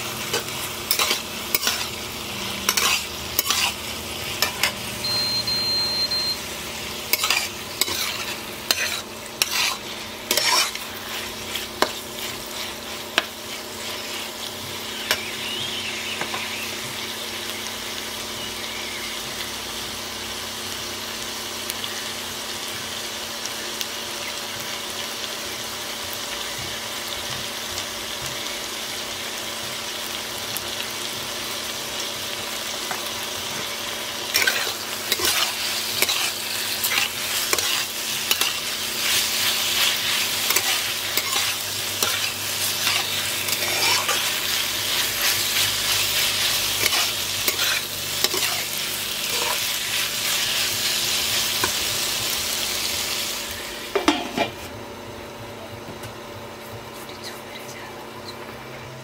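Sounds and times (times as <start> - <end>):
vegetables sizzling in oil: 0.0 - 55.4
spatula scraping a pan: 0.3 - 2.0, 2.6 - 4.8, 7.1 - 14.4, 34.3 - 51.9.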